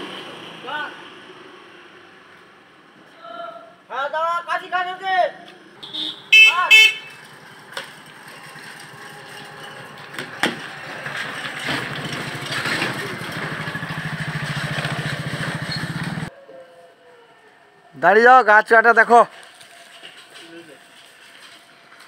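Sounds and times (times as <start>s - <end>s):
engine running with fast pulse: 7.3s - 16.3s.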